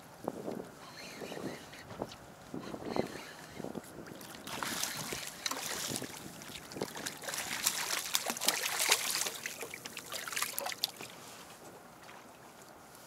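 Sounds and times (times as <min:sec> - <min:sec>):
fish splashing in water: 0:04.1 - 0:11.2.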